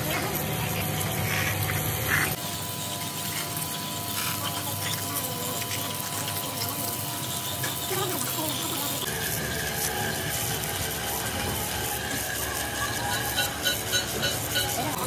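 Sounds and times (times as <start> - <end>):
running water: 0.0 - 9.4.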